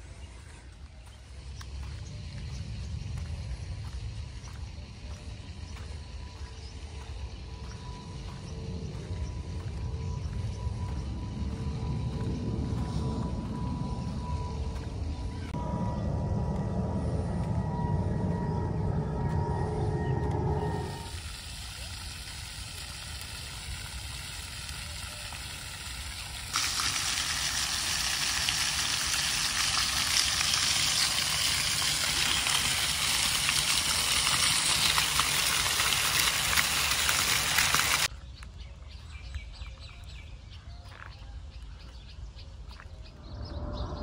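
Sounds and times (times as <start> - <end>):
fountain water splashing on tiles: 20.8 - 38.1.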